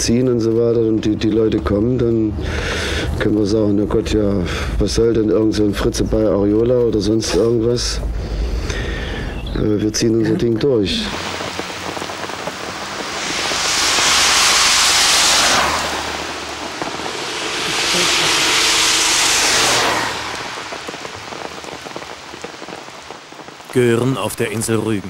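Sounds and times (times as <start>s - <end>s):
steady wet road hiss: 0.0s - 25.0s
vehicles passing with tyre spray: 11.0s - 23.7s.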